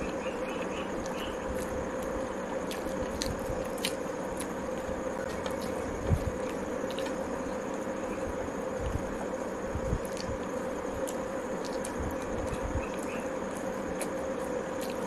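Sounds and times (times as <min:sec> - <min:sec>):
steady background hum: 0:00.0 - 0:15.0
soft crackles and small clicks: 0:10.0 - 0:15.0.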